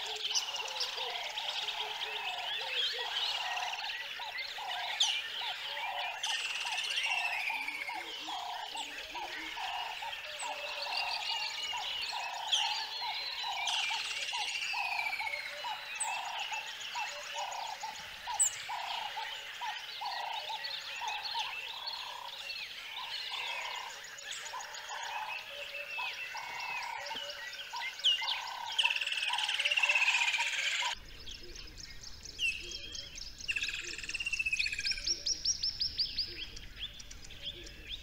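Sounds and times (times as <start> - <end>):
birds chirping and whistling: 0.0 - 38.0
croaking call: 23.0 - 31.0.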